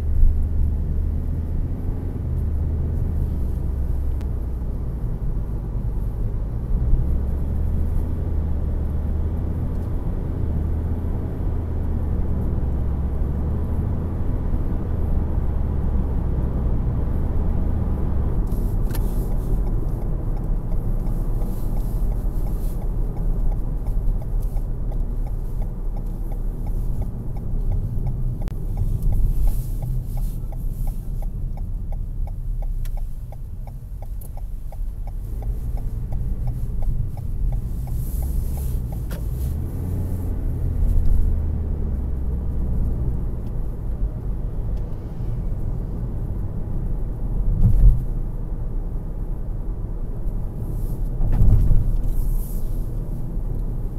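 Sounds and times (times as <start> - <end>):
car road and engine noise: 0.0 - 53.9
faint regular ticking: 18.9 - 39.4.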